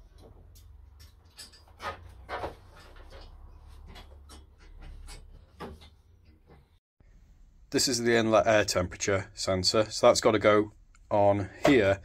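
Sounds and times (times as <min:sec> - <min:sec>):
metallic clicks and knocks: 0:00.1 - 0:06.8.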